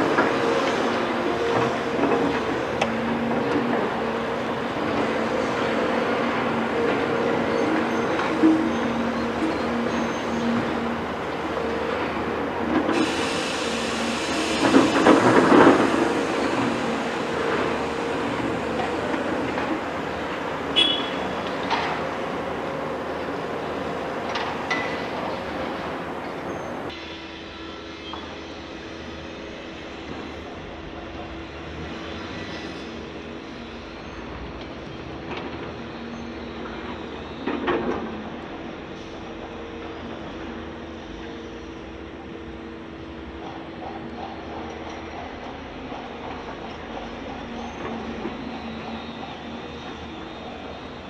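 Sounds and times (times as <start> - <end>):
excavator diesel engine humming: 0.0 - 26.9.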